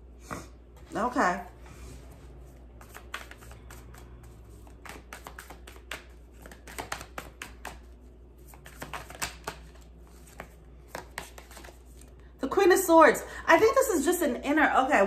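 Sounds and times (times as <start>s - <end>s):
cards being shuffled: 2.5s - 12.2s.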